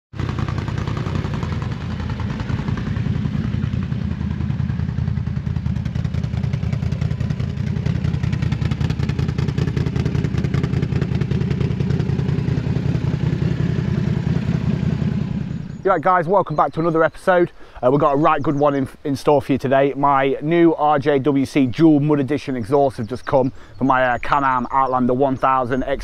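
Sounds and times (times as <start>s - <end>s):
atv engine deep firing note: 0.1s - 16.7s.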